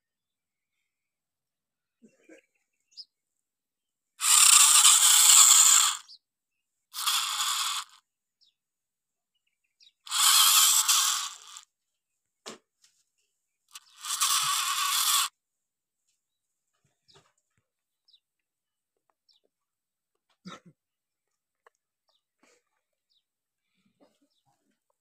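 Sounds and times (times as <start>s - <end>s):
toy gear motor grinding: 4.2s - 6.2s, 6.9s - 8.0s, 10.0s - 11.7s, 13.7s - 15.4s.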